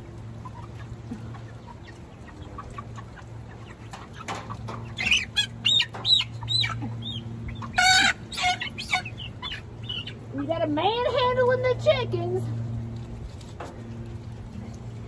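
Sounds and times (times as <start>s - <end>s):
young chickens peeping and squawking: 0.0s - 15.0s.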